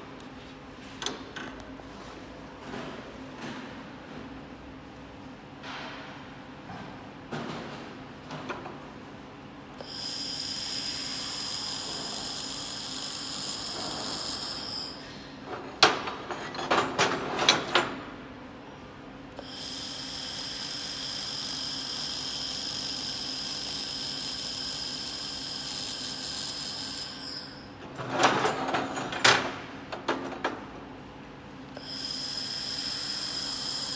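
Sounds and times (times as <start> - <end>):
laser welder high-pitched whine: 9.8 - 15.4, 19.4 - 27.8, 31.7 - 33.9.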